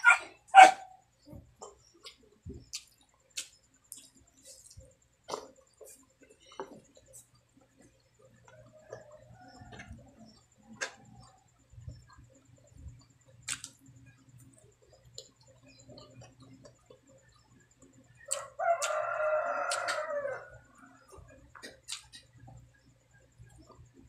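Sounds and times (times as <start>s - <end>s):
eating by hand clicks and smacks: 1.4s - 19.0s, 19.6s - 20.1s, 21.0s - 24.0s
rooster crowing: 18.3s - 21.2s.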